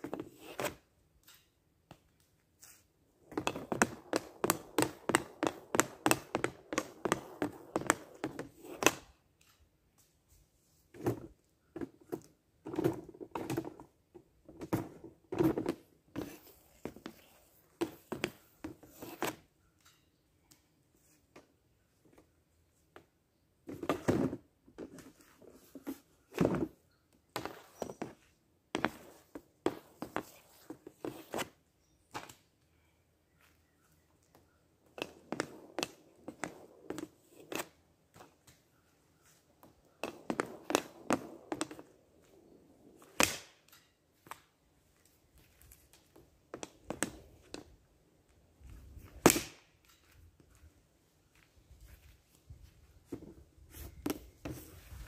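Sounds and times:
hockey stick clacking and scraping: 2.7s - 9.1s, 27.4s - 31.6s, 34.3s - 43.9s
pucks being struck: 43.0s - 43.8s, 49.2s - 49.6s.

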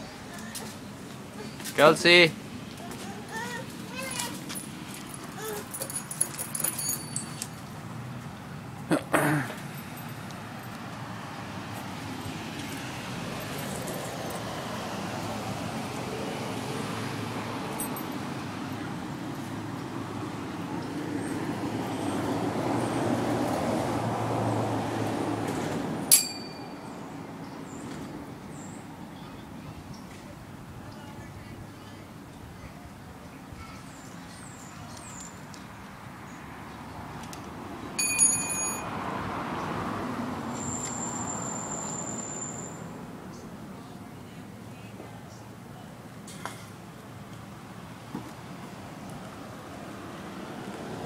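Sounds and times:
car driving past: 38.8s - 42.8s.

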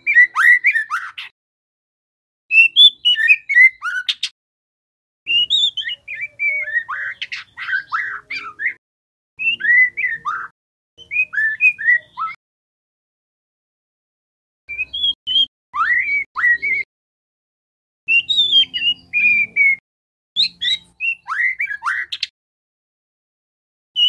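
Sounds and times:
bird singing whistled notes: 0.0s - 1.3s, 2.5s - 4.3s, 5.3s - 8.8s, 9.4s - 12.4s, 14.7s - 16.9s, 18.1s - 19.8s, 20.4s - 22.3s.

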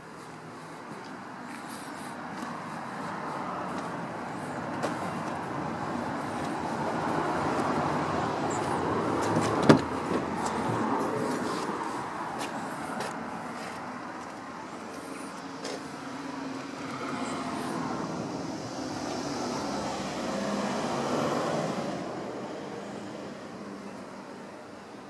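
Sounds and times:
road traffic noise: 0.0s - 25.0s.

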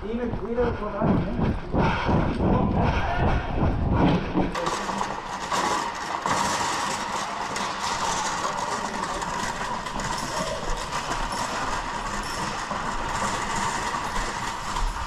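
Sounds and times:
trolley rattling over asphalt: 4.5s - 15.0s.

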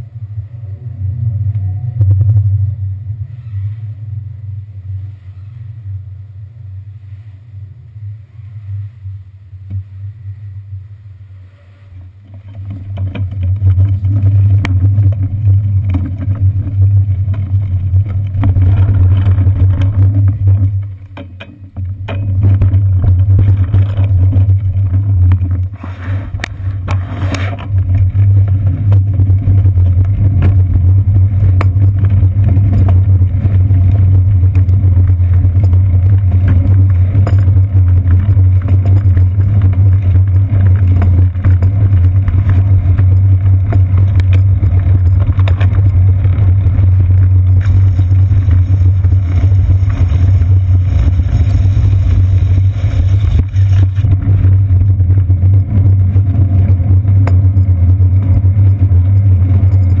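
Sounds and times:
bicycle rumbling over wet pavement: 12.1s - 60.0s.

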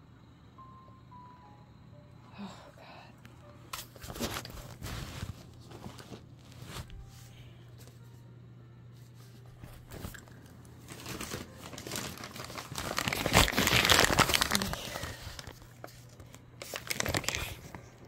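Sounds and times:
steady low hum: 0.0s - 18.0s
rustling and crinkling: 3.7s - 8.1s, 9.0s - 18.0s.

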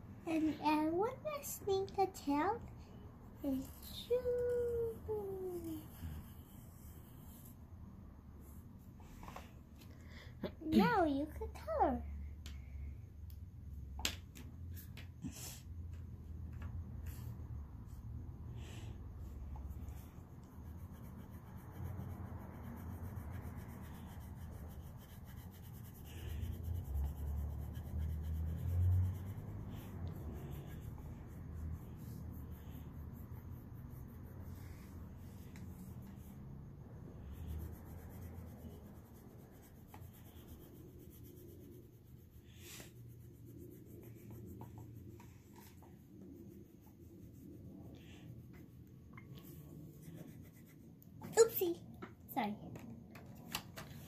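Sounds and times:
crayon rubbing on paper: 19.2s - 48.8s, 49.4s - 51.6s.

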